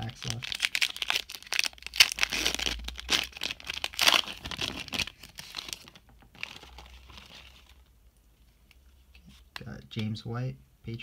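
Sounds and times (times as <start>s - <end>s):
foil wrapper tearing and crinkling: 0.0s - 7.7s.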